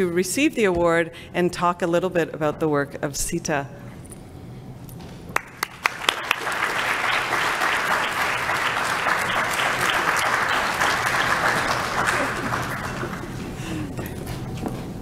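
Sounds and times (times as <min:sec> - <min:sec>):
audience applauding: 0:05.4 - 0:13.8.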